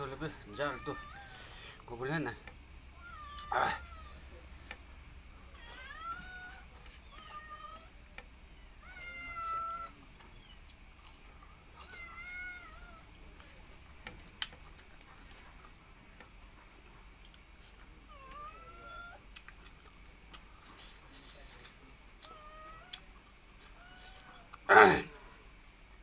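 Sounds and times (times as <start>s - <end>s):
cat meowing: 0.6s - 1.4s, 2.9s - 4.2s, 5.5s - 7.9s, 8.8s - 10.0s, 11.8s - 13.1s, 18.1s - 19.2s, 22.2s - 23.1s, 23.7s - 24.5s.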